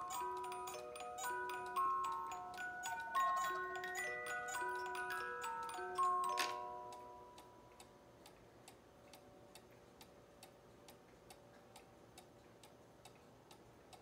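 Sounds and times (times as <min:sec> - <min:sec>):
music box tune: 0:00.0 - 0:08.1
clock ticking: 0:00.0 - 0:14.0.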